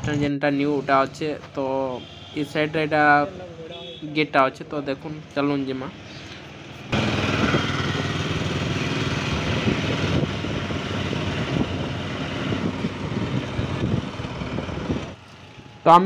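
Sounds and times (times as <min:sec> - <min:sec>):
vehicle engine running: 0:06.1 - 0:15.9
wind rushing over microphone: 0:06.9 - 0:15.2.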